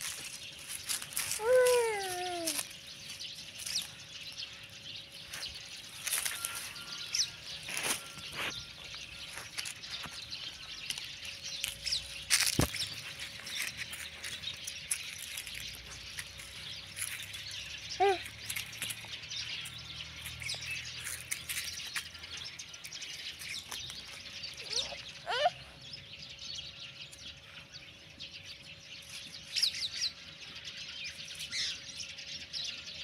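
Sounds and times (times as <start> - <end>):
puppy rustling on dry leaves: 0.0 - 25.6
faint bird chirps: 20.4 - 26.1.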